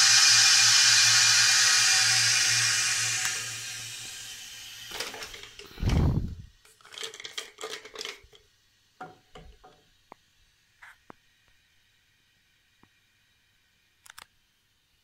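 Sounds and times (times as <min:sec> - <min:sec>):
plastic clicks and knocks: 0:09.0 - 0:09.8.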